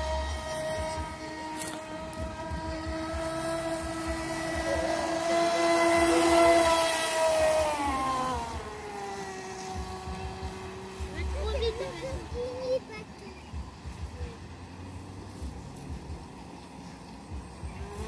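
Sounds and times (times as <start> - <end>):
electric motor whining: 0.0 - 12.4, 17.3 - 18.0.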